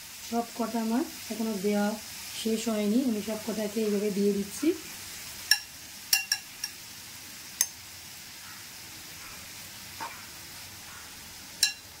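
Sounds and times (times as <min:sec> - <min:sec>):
chicken sizzling in a frying pan: 0:00.0 - 0:12.0
utensil tapping pan: 0:05.5 - 0:06.8, 0:11.6 - 0:12.0.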